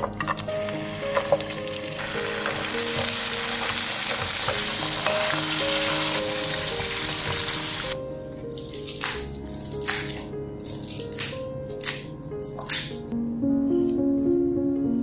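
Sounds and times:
background music: 0:00.0 - 0:15.0
food sizzling in a pan: 0:00.2 - 0:08.0.

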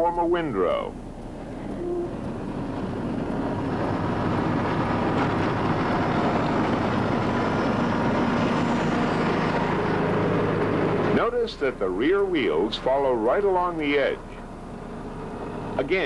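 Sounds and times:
diesel engine running under load: 0:00.0 - 0:16.0.

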